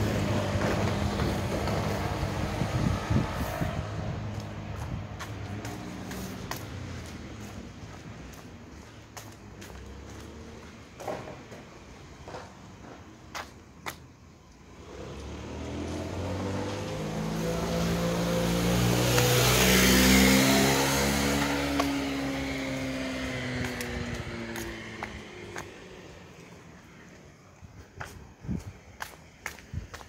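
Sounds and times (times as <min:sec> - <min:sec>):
vehicle passing by: 0:00.0 - 0:11.0, 0:14.7 - 0:27.2.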